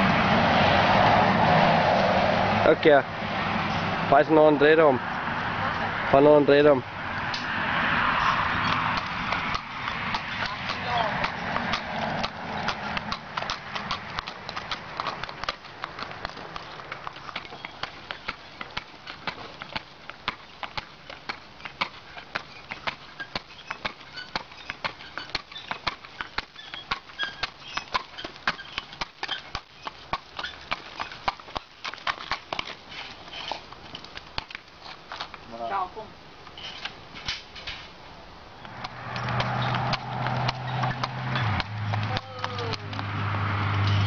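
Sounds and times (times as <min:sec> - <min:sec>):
hooves clip-clopping on asphalt: 0:00.0 - 0:44.0.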